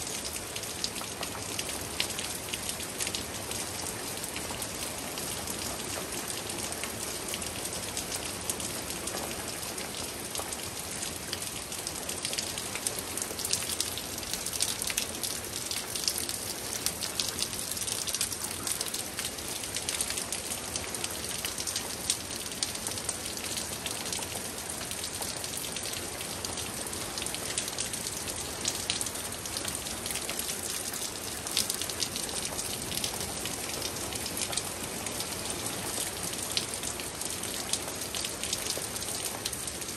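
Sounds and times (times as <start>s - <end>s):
steady rain: 0.0s - 39.9s
raindrops ticking close by: 0.1s - 39.9s.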